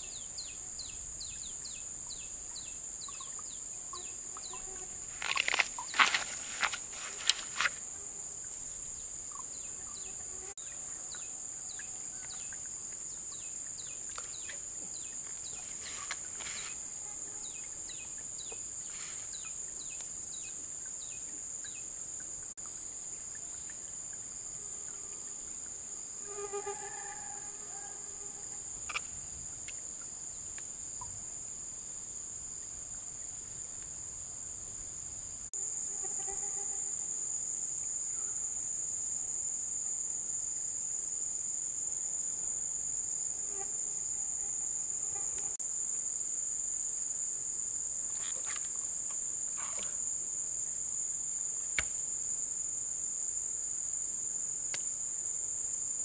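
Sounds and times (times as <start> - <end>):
bird chirping: 0.0 - 4.7
insects shrilling: 3.9 - 8.0.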